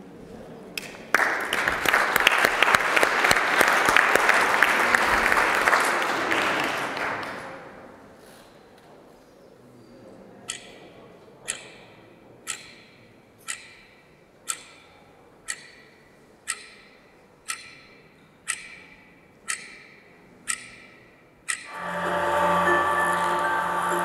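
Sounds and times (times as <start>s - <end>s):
clock ticking: 11.5s - 11.8s, 12.5s - 14.8s, 15.4s - 21.8s.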